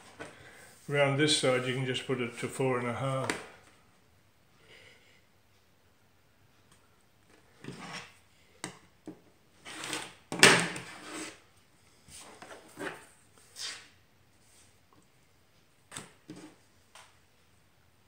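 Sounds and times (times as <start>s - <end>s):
ruler scraping on cutting mat: 7.6s - 8.2s, 9.6s - 10.2s, 10.8s - 11.4s, 12.2s - 13.9s.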